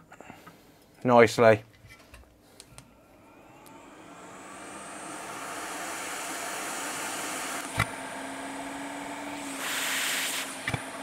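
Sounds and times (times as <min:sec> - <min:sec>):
hot air blower rushing: 0:02.9 - 0:11.0.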